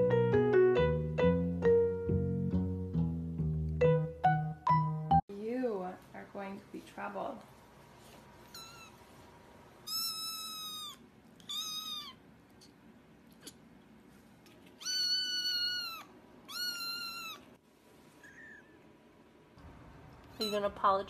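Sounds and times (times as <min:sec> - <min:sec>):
kitten meowing: 0:08.5 - 0:09.0, 0:09.8 - 0:12.2, 0:14.8 - 0:17.5.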